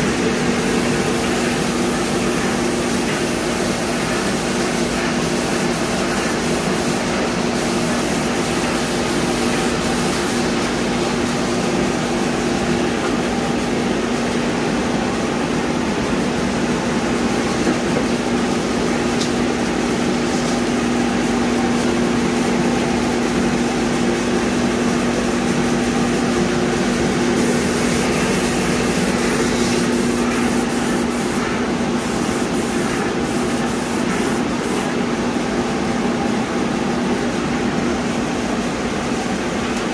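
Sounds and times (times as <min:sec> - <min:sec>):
machine hum: 0:00.0 - 0:39.9
spray gun hissing: 0:00.6 - 0:10.7, 0:27.3 - 0:35.0.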